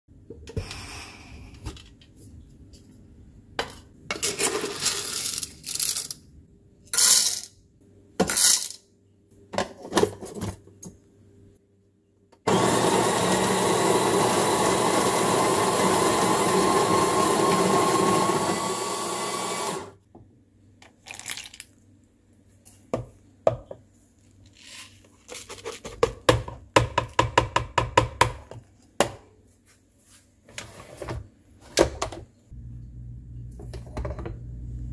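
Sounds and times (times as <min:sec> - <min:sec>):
coffee grinder grinding beans: 0:12.5 - 0:20.0.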